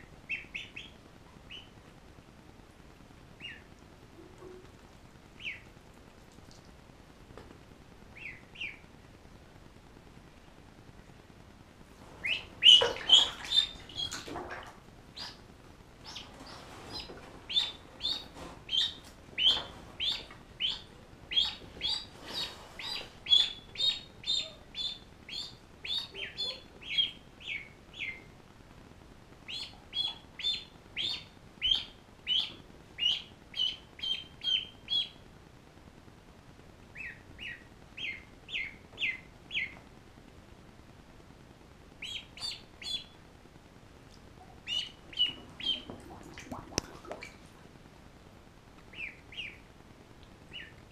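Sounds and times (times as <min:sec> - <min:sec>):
ducklings peeping: 0:00.0 - 0:01.8, 0:03.4 - 0:03.8, 0:05.4 - 0:05.7, 0:08.1 - 0:08.9, 0:12.0 - 0:28.3, 0:29.4 - 0:35.2, 0:36.9 - 0:39.8, 0:42.0 - 0:43.2, 0:44.4 - 0:47.4, 0:48.8 - 0:49.7, 0:50.5 - 0:50.9
water splashing in a bath: 0:12.1 - 0:15.4, 0:45.1 - 0:47.6.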